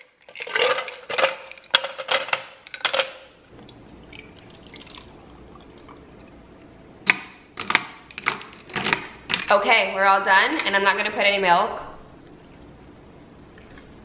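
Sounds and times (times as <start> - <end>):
ice cubes clinking into tumbler: 0.0 - 3.2
coffee pouring over ice: 3.7 - 6.1.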